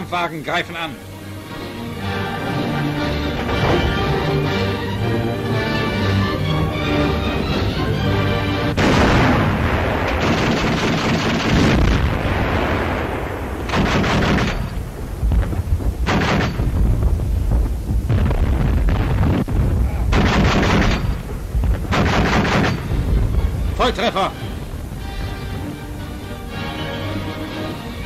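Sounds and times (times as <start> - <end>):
field gun firing: 8.8 - 17.4, 18.0 - 25.3.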